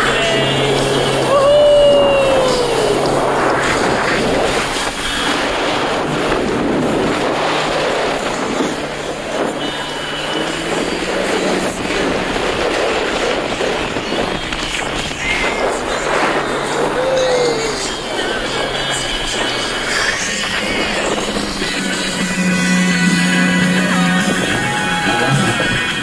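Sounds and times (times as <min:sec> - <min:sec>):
faint engine hum: 0:00.0 - 0:26.0
water hissing from hull: 0:00.0 - 0:26.0
wind rushing over microphone: 0:00.0 - 0:26.0.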